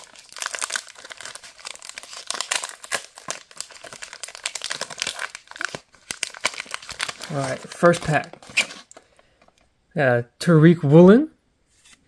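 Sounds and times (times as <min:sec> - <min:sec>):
plastic wrapper crinkling and tearing: 0:00.0 - 0:09.6.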